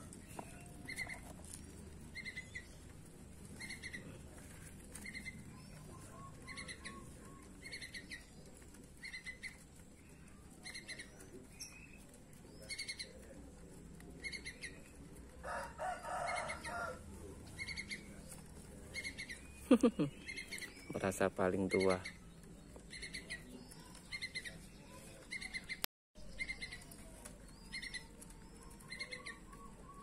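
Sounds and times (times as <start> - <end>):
high bird chirps: 18.9 - 30.0.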